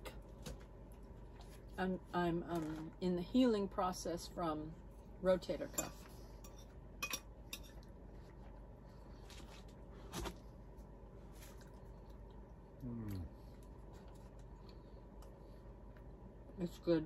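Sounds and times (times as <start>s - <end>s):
faint steady hum: 0.0s - 17.0s
person humming mm: 12.8s - 13.4s.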